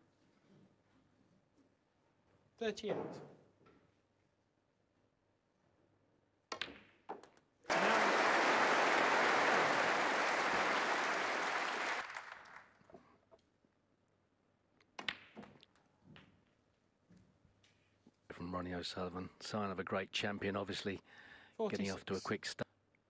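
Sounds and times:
audience applause: 7.7 - 12.8.

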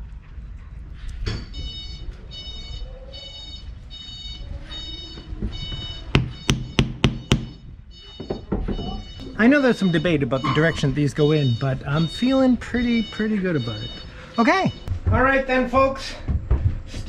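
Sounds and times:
electronic beeping: 1.4 - 14.9.

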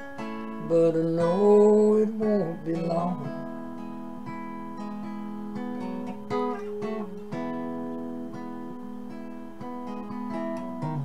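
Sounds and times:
guitar strummed chords ringing: 0.0 - 11.0.

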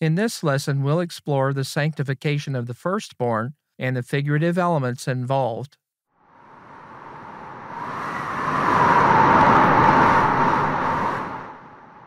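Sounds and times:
whoosh of rushing noise: 6.2 - 12.0.

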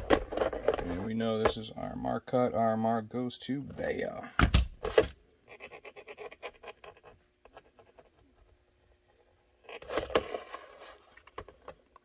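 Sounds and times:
pencil scratching on plastic: 5.4 - 8.4.

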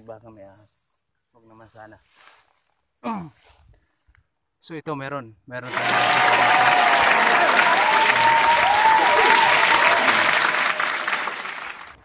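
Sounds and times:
crowd cheering: 5.6 - 12.0
crowd clapping: 5.6 - 12.0.

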